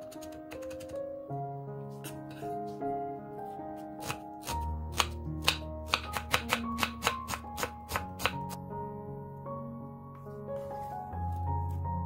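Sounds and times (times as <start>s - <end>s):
knife chopping on cutting board: 4.0s - 8.5s.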